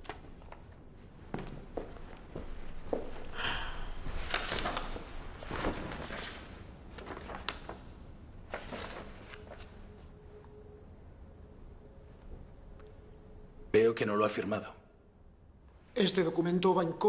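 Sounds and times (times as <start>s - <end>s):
paper rustling: 4.0s - 7.9s, 8.5s - 10.1s.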